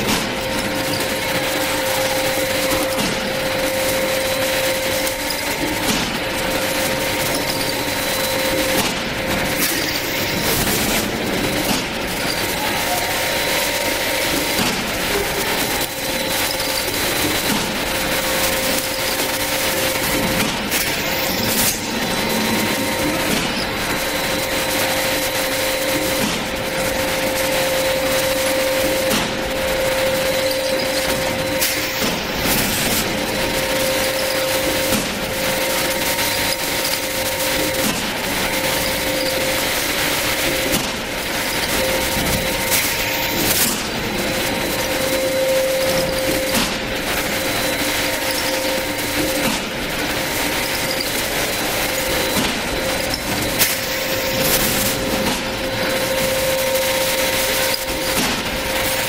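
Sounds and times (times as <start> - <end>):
labeling machine motor hum: 0.0 - 59.0.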